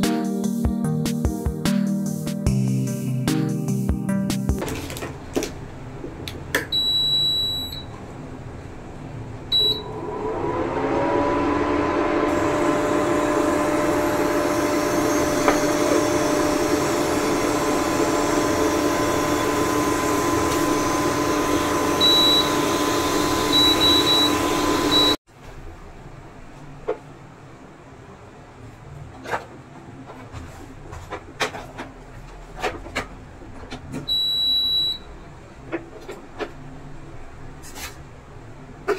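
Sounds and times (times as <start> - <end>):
cooling fan hum: 4.6 - 31.5
control panel beeps: 6.7 - 7.9, 9.5 - 9.8, 23.5 - 25.2, 34.1 - 35.1.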